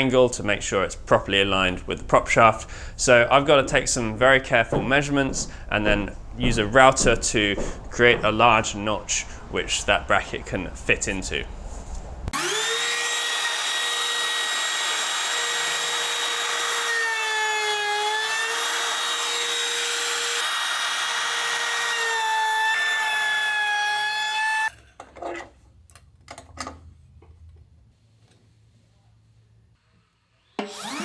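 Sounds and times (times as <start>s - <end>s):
trim router high whine: 12.4s - 17.3s
knocks and scrapes: 24.8s - 28.9s.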